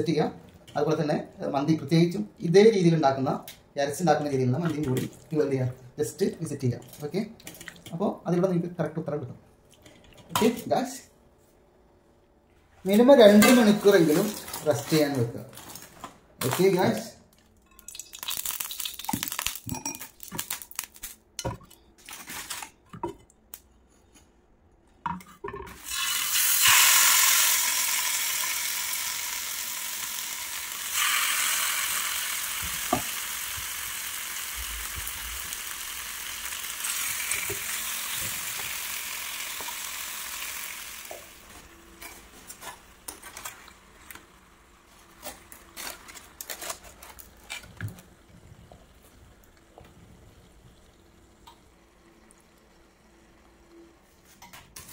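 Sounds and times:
pans and utensils clinking: 13.3 - 17.0
chicken sizzling in hot oil: 25.8 - 41.7.

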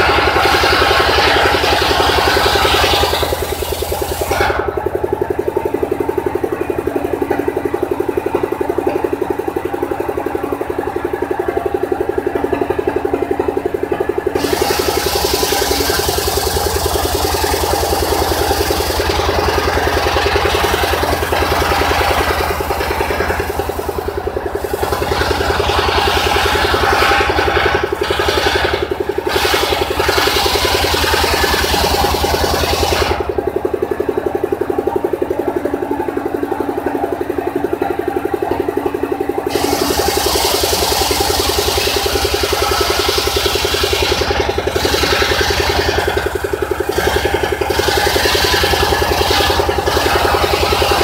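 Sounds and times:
circular saw ripping through log: 0.0 - 4.7, 14.4 - 24.0, 24.6 - 33.3, 39.5 - 51.0
sawmill engine hum: 0.0 - 51.0.

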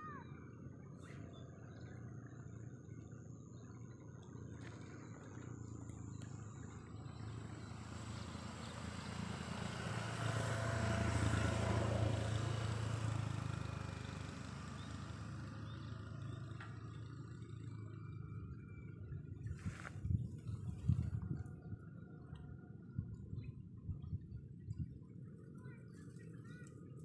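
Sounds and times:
vehicle passing by: 4.6 - 22.0.

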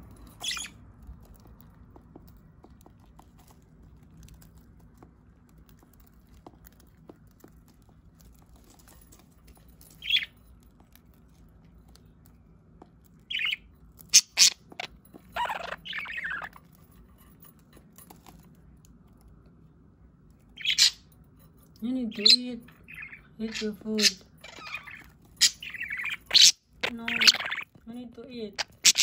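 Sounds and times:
budgerigar chirping: 0.4 - 0.8, 13.3 - 13.6, 14.2 - 14.6, 15.4 - 16.5, 20.6 - 21.0, 22.2 - 27.7, 28.6 - 29.0
budgerigar warbling chatter: 15.4 - 16.5, 22.2 - 27.6, 28.6 - 29.0
budgerigar squawks: 22.9 - 27.6, 28.6 - 29.0.

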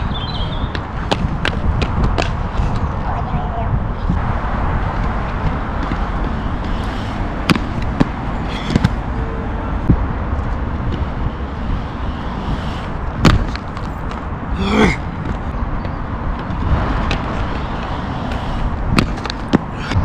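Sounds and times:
low rumble: 3.8 - 15.6.

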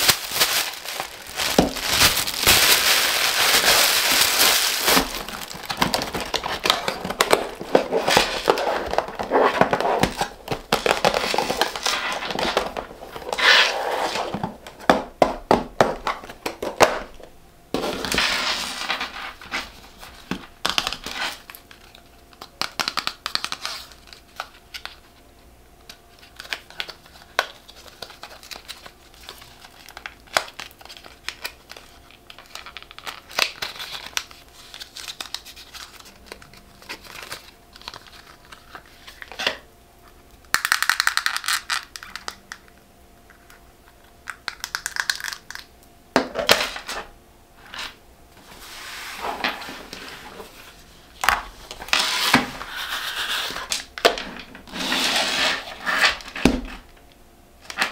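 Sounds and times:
wrapping paper crinkling: 0.0 - 14.4, 17.9 - 39.6, 40.5 - 42.6.

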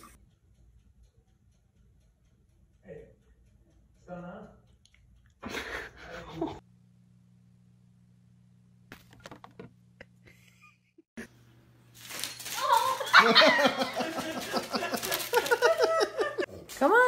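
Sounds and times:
person laughing loudly: 12.6 - 16.5.

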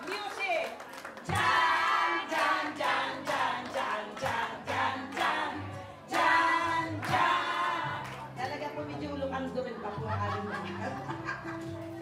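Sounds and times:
group of voices singing: 1.3 - 8.4.

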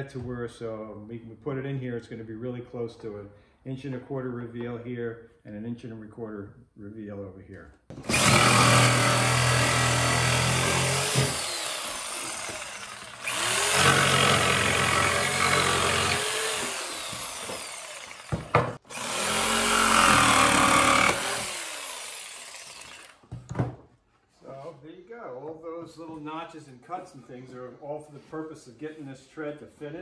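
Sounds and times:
jigsaw cutting wood: 7.9 - 23.2.

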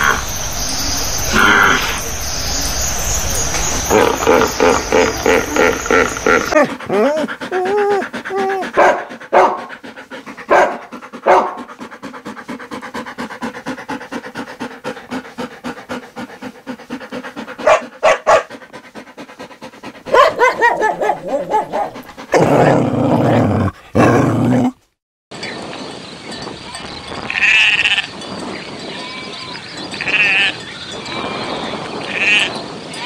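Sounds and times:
dog panting: 3.4 - 22.8
dog whimpering: 4.8 - 8.8
dog barking: 8.8 - 9.7, 10.5 - 11.6, 17.6 - 18.5, 20.1 - 22.0.

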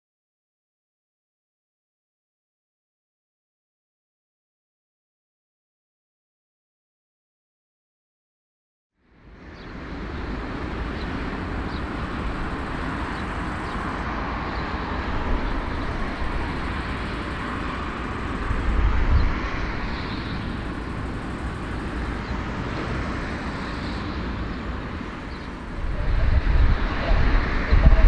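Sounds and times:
jet engines rumbling: 9.3 - 28.0.

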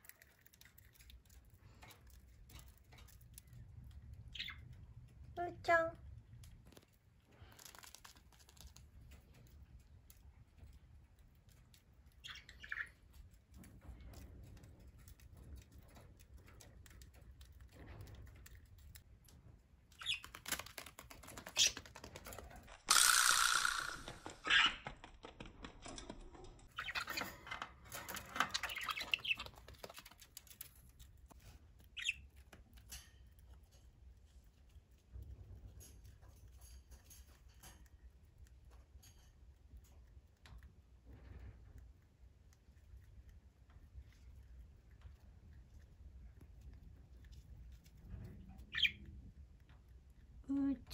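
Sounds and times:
parrot chirping: 12.2 - 13.0, 22.9 - 24.9, 28.4 - 30.2, 48.6 - 49.1.

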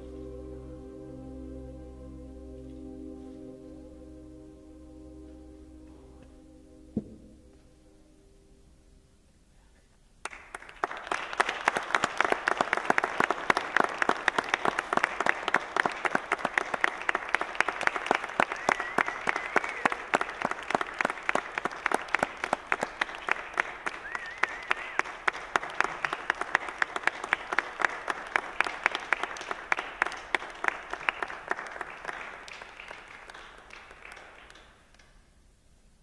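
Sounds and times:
audience applauding: 10.2 - 35.2.

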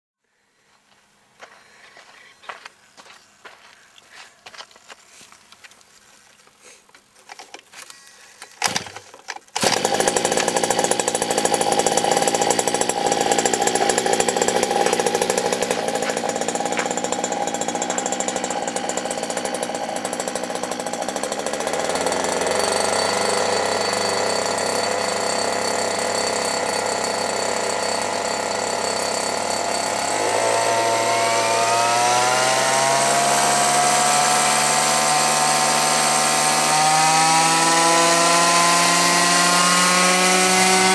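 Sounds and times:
two-stroke engine running: 8.6 - 40.9.

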